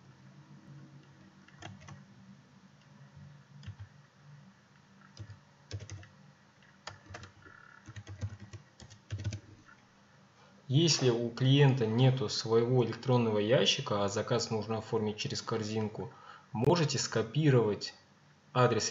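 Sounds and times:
computer keyboard key clicks: 5.2 - 6.1, 6.9 - 9.4.

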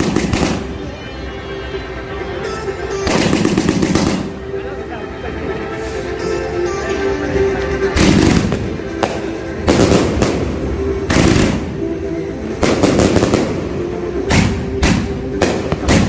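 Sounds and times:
fireworks bangs: 0.0 - 0.8, 3.1 - 4.4, 8.0 - 11.9, 12.6 - 16.0.

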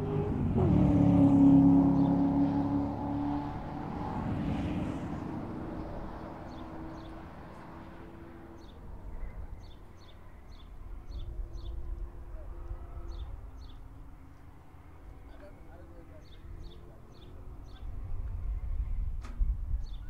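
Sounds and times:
passing car engine: 0.0 - 18.4
faint distant engine drone: 0.0 - 20.0.

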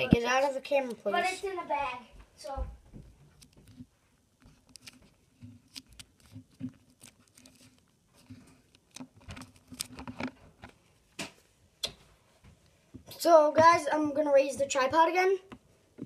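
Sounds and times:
plastic card sleeves rustling: 3.4 - 10.8.

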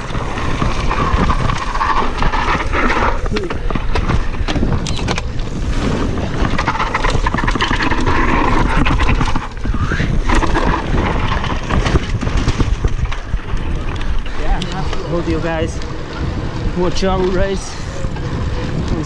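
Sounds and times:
bike rattling and knocking: 0.0 - 19.0
wind rushing over microphone: 0.0 - 19.0.

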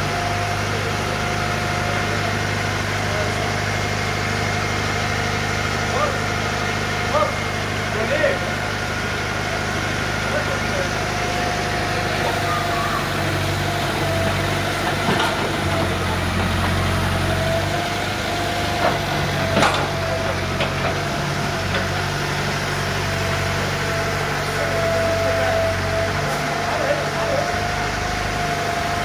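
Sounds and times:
diesel engine drone: 0.0 - 29.0
machinery whine: 7.0 - 29.0.

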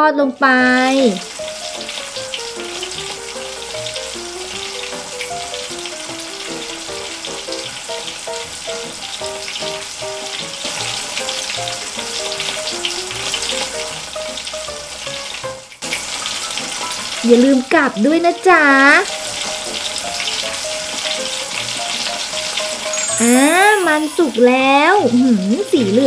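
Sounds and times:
deep-frying sizzle: 0.0 - 26.0
light plinking tune: 22.8 - 25.4.

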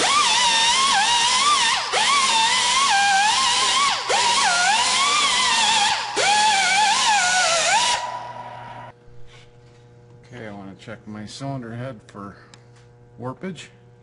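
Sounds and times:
pneumatic die grinder whine: 0.0 - 9.4.

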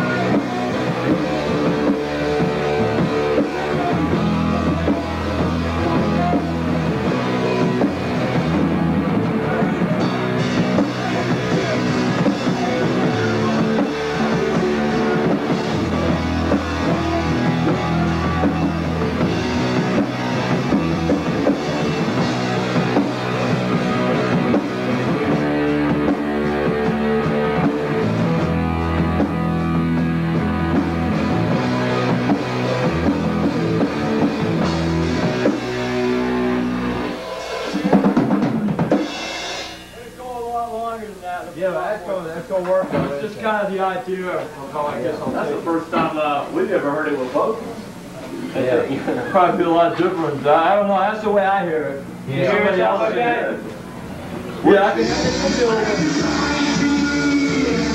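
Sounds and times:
punk rock band playing live: 0.0 - 40.5, 53.3 - 57.9.

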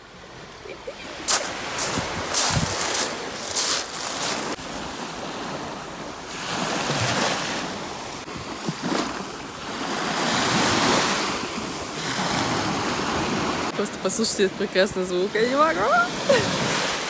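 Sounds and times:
small waves washing on sand: 0.1 - 17.0
footsteps crunching on shells: 1.3 - 4.6.

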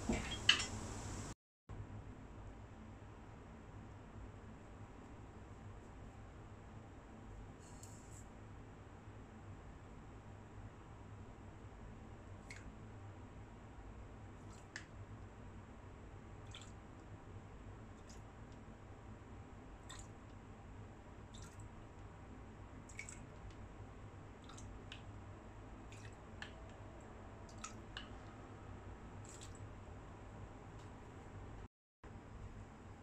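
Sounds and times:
low steady hum: 0.0 - 33.0
faint drip-like ticks: 17.9 - 18.6, 24.4 - 25.1.

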